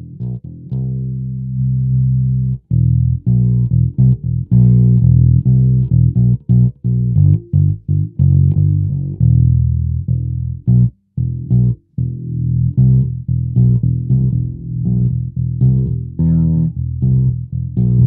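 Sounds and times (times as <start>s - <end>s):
plucked electric bass: 0.0s - 18.0s.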